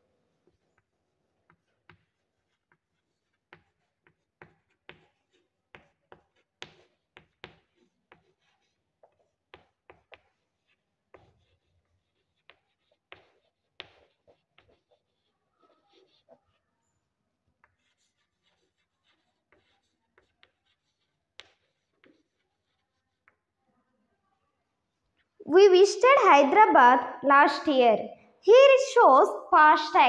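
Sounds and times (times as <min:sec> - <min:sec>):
chalk tapping on blackboard: 0:00.4 - 0:16.6, 0:17.6 - 0:23.6.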